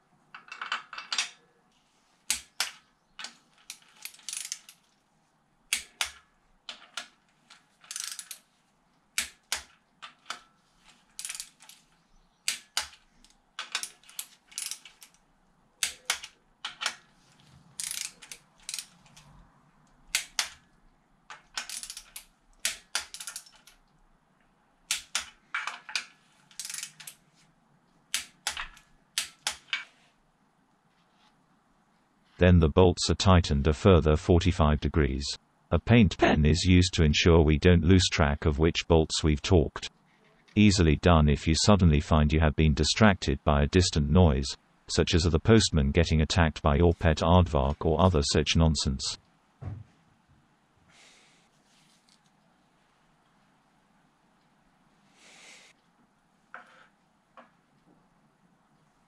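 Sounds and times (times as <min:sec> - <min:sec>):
socket ratchet clicking: 0:03.7 - 0:04.8, 0:05.7 - 0:07.1, 0:07.8 - 0:08.4, 0:13.6 - 0:15.2, 0:17.8 - 0:19.2, 0:21.3 - 0:23.7, 0:26.6 - 0:27.2.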